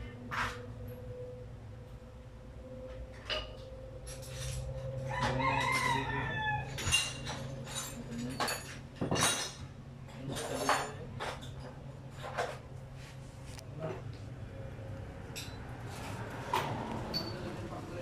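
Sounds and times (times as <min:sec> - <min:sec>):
rooster crowing: 0:04.7 - 0:07.6.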